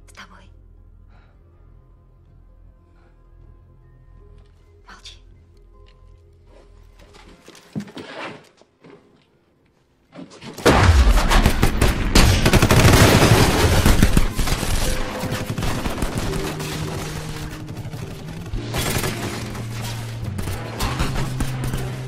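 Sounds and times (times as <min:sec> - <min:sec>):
automatic gunfire: 0:10.7 - 0:22.0.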